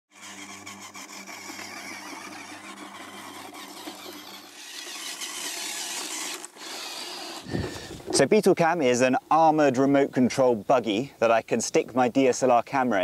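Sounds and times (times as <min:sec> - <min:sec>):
small electric motor whirring: 0:00.1 - 0:08.2.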